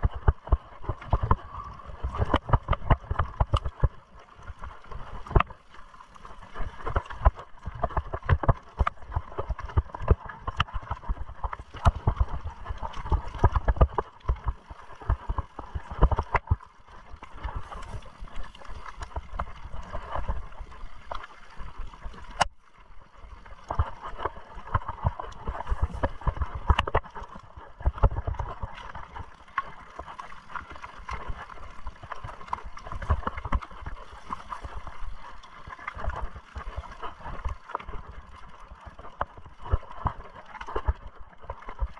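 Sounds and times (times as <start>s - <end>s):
wind rumble on microphone: 0.0s - 41.9s.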